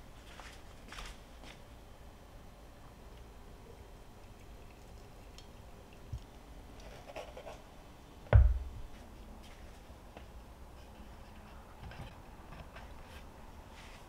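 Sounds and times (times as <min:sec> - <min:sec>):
light knock on wood: 0:08.3 - 0:08.8
dull thump: 0:08.3 - 0:08.9.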